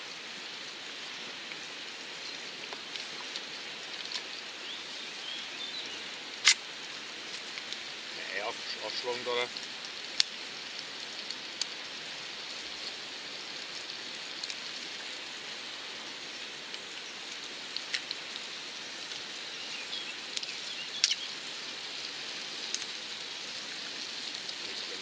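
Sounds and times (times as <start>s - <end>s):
bacon sizzling in a pan: 0.0s - 25.0s
sharp fat pops: 6.4s - 6.7s.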